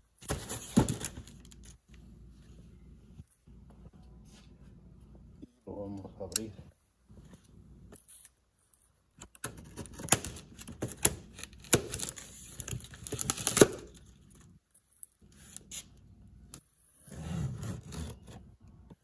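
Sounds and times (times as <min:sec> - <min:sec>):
packaging snapping and crackling: 0:09.4 - 0:14.2
packaging rustling: 0:09.7 - 0:14.4.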